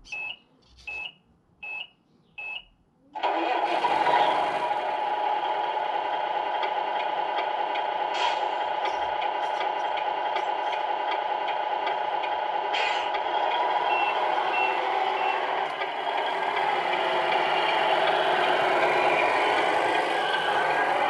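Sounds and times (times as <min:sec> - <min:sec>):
reversing beeps: 0:00.1 - 0:02.7, 0:13.9 - 0:15.5
simulated truck engine: 0:02.4 - 0:21.0.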